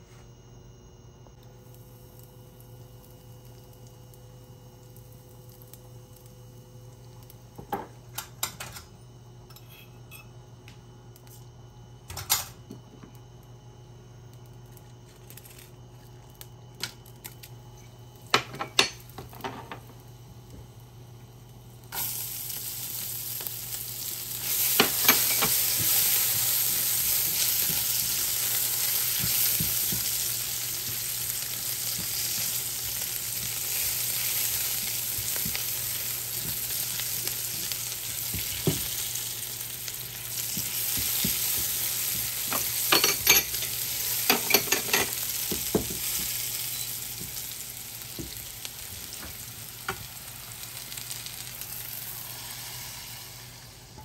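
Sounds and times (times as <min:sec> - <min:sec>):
garlic sizzling in hot oil: 0:01.5 - 0:07.8, 0:18.1 - 0:54.0
spices dropping into pan: 0:21.9 - 0:53.1.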